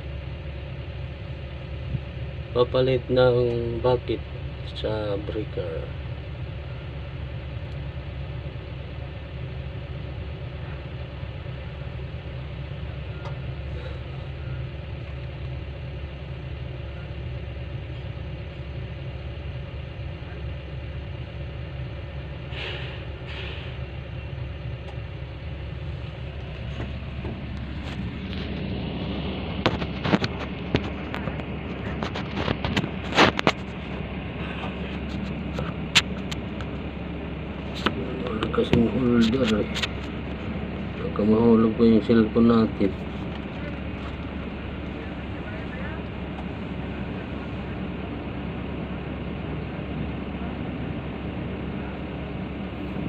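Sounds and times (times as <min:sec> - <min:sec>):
excavator diesel engine idling: 0:00.0 - 0:53.0.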